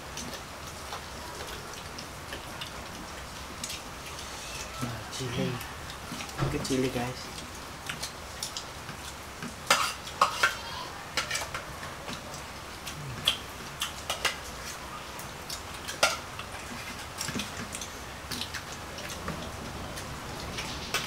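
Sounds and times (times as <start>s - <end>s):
plates and spoon clinking: 9.7s - 10.6s.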